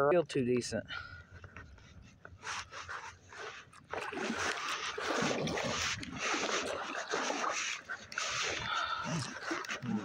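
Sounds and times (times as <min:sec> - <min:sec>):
water splashing around kayak: 0:01.6 - 0:10.0.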